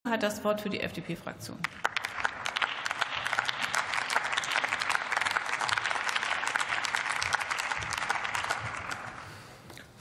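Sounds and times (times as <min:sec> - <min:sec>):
crowd applauding: 0:01.7 - 0:09.5.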